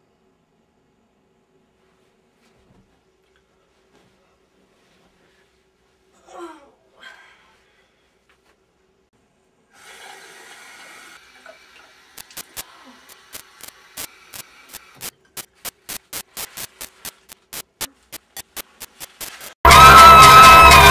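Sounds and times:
sharp clicks speeding up: 0:12.2 - 0:19.6.

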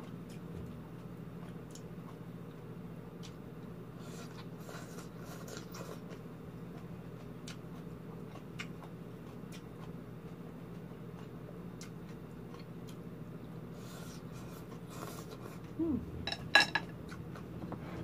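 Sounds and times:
chewing and crunching: 0:00.0 - 0:15.8
low hum: 0:15.5 - 0:18.0.

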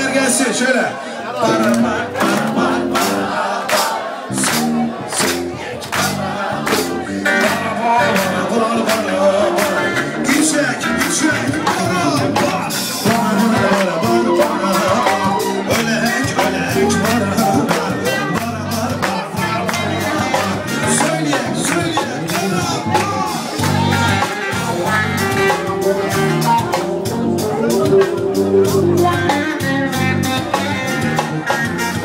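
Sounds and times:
loud party music: 0:00.0 - 0:32.0
person singing: 0:04.3 - 0:32.0.

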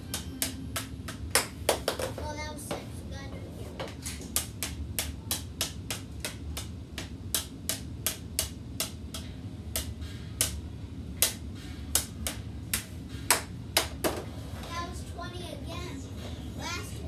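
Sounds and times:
ball tapping on hockey stick: 0:03.8 - 0:10.6.

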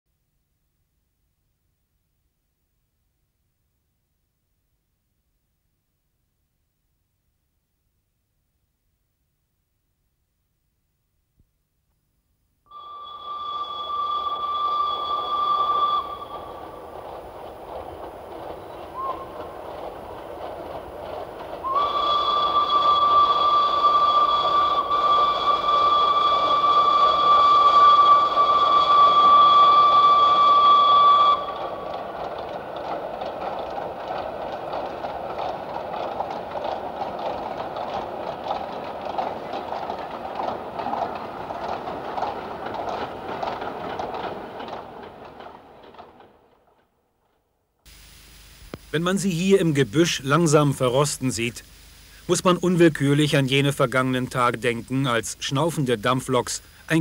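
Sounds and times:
steam locomotive whistle: 0:12.7 - 0:45.0
train clattering on tracks: 0:12.8 - 0:47.5.

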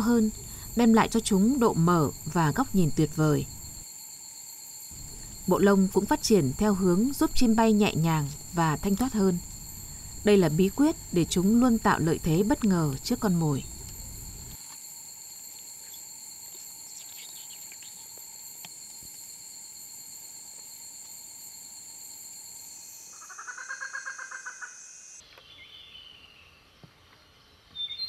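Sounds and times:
faint outdoor ambience: 0:00.0 - 0:28.0
insects trilling: 0:00.0 - 0:28.0.

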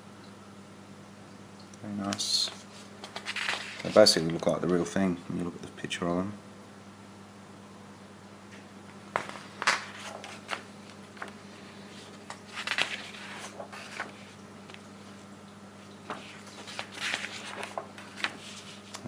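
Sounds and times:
faint steady hum: 0:00.0 - 0:19.0
paper pages turning: 0:02.0 - 0:04.9, 0:09.1 - 0:15.2, 0:16.0 - 0:19.0.

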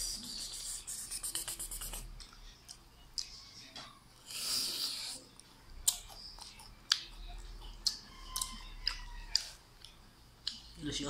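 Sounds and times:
crunchy chewing: 0:05.8 - 0:10.6.

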